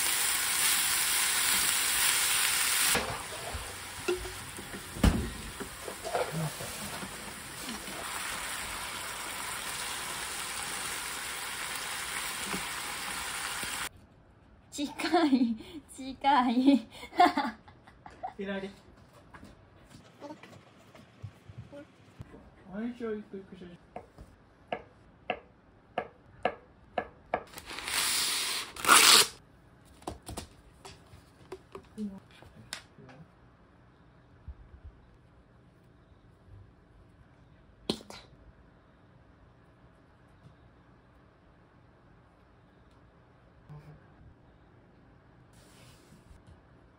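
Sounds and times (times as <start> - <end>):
food sizzling in a frying pan: 0.0 - 13.9
paper tearing: 27.5 - 29.4.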